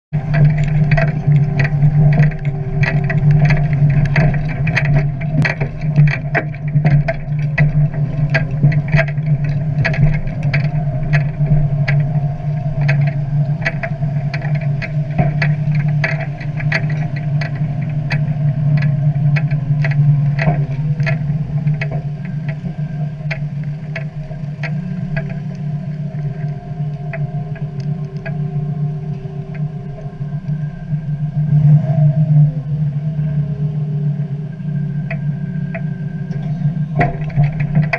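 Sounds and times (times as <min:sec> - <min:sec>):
tractor engine running: 0:00.1 - 0:27.9
straw chopper rattling: 0:00.2 - 0:28.5.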